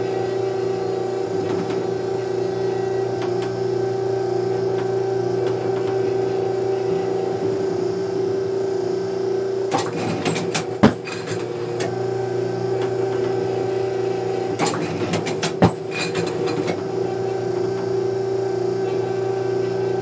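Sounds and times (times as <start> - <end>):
steady hum: 0.0 - 20.0
mechanical clicks and clatter: 14.6 - 16.8.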